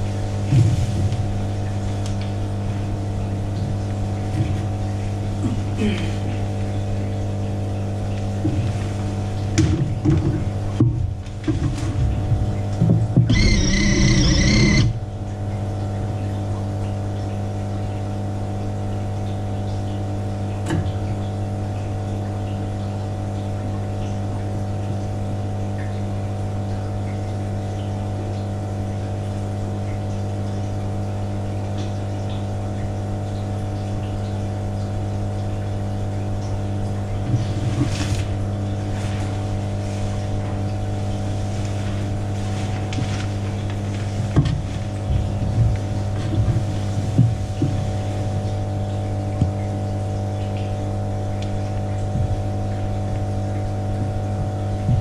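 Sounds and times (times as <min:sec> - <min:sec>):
low machine hum: 0:00.0 - 0:55.0
high-pitched tone burst: 0:13.3 - 0:15.0.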